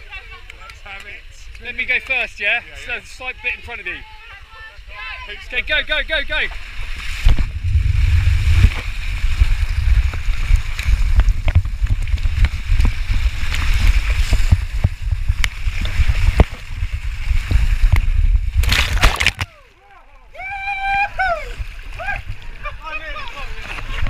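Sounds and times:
water rushing over camera: 0:06.2 - 0:24.0
loud splash: 0:06.7 - 0:11.5, 0:12.2 - 0:19.6.

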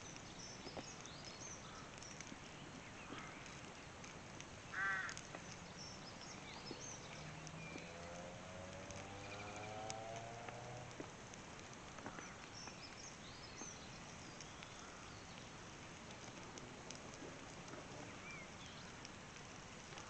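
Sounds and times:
birds chirping: 0:00.0 - 0:04.0, 0:04.6 - 0:10.6, 0:12.0 - 0:15.6, 0:17.7 - 0:19.1
faint steady hiss: 0:00.0 - 0:20.0
wood fire crackling: 0:00.0 - 0:20.0.

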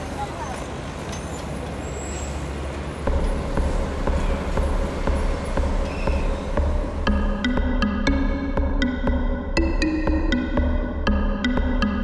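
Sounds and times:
electronic score with pulsing beat: 0:03.1 - 0:12.0.

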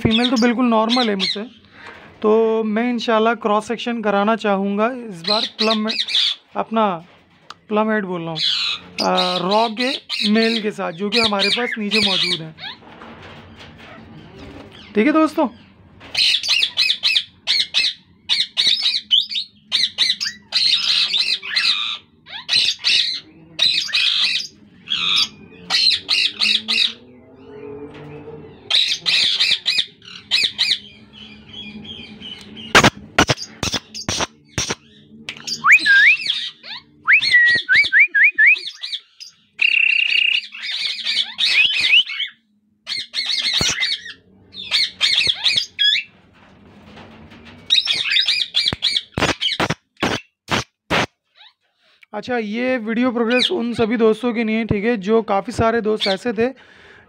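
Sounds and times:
parakeets squawking: 0:00.0 - 0:02.0, 0:05.1 - 0:06.6, 0:08.3 - 0:46.1, 0:47.7 - 0:51.6, 0:53.2 - 0:53.9
rising whistled notes: 0:35.5 - 0:36.3, 0:37.0 - 0:38.6.

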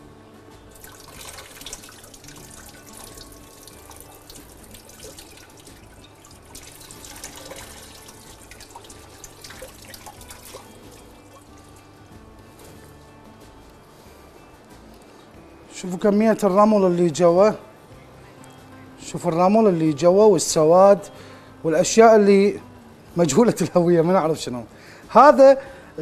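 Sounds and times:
water running at a sink: 0:00.8 - 0:11.8.

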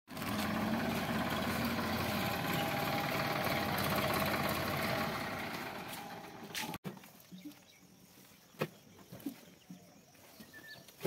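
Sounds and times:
tractor diesel engine idling: 0:00.1 - 0:06.8.

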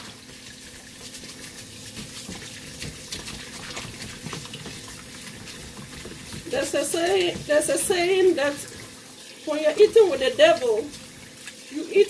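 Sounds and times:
dish brush scrubbing blade: 0:00.0 - 0:08.8
tap running into plastic bowl: 0:02.1 - 0:08.9.

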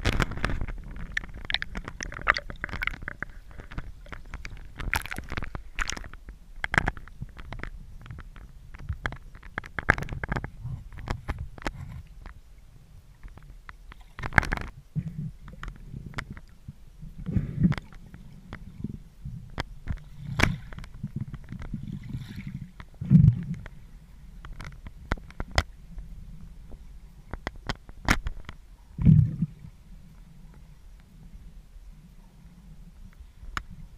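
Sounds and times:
underwater river rumble: 0:00.0 - 0:33.9.

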